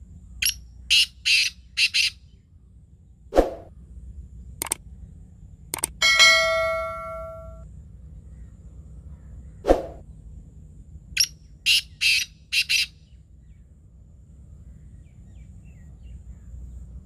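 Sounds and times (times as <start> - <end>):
francolin calling: 0.4 - 2.4, 11.2 - 13.2.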